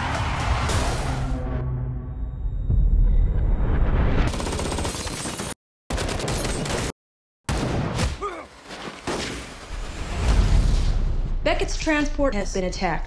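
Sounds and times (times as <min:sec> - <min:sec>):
rapid automatic gunfire: 0:04.3 - 0:06.9.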